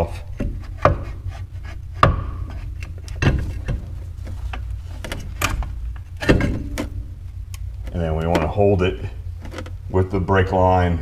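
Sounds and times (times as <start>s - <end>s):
metal knocks and clunks: 0.0s - 1.3s, 1.9s - 7.2s, 7.8s - 8.8s
steady low hum: 0.0s - 11.0s.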